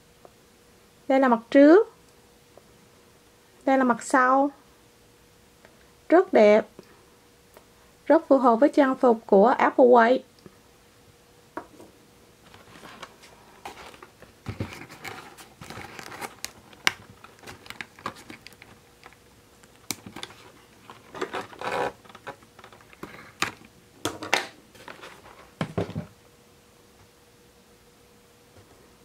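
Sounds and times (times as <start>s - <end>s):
packaging crinkling and rustling: 12.4s - 23.7s.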